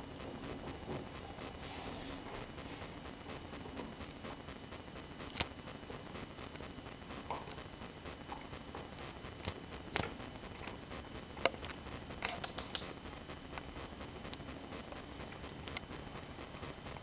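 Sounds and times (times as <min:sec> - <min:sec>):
sharp little clicks: 0:11.4 - 0:13.0.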